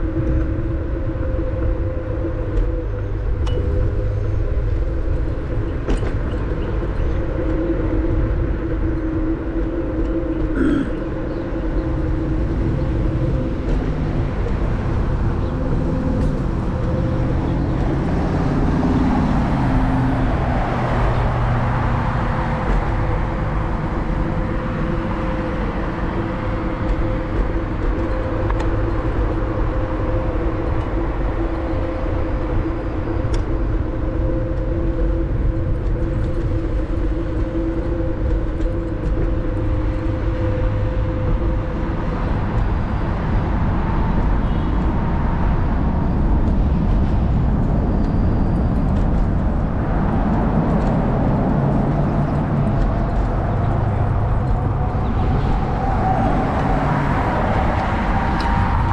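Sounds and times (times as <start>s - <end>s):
wind rushing over microphone: 0.0s - 58.9s
whine rising in pitch: 47.8s - 58.9s.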